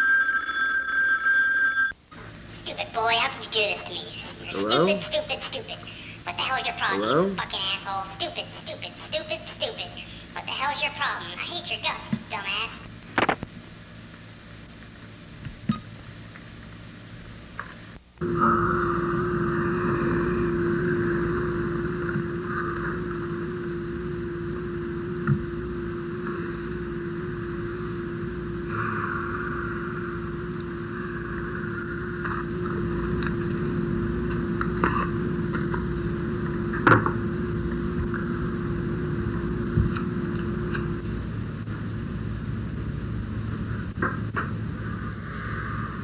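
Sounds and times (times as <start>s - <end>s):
engine-like drone: 18.2s - 41.7s, 43.7s - 46.0s.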